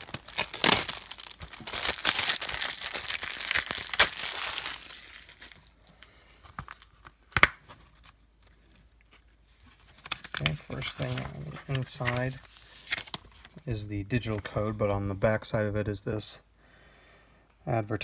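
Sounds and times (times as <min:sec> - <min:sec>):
plastic wrap crinkling: 0:00.0 - 0:07.2.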